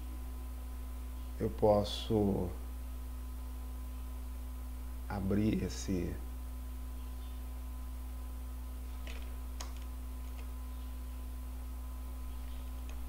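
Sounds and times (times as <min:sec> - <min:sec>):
low electrical hum: 0:00.0 - 0:13.0
computer mouse clicks: 0:09.0 - 0:10.5.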